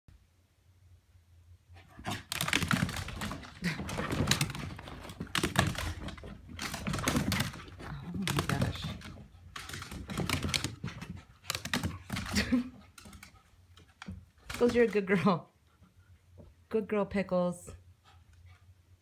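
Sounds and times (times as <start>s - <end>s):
dog claws clicking on wooden floor: 2.1s - 15.0s.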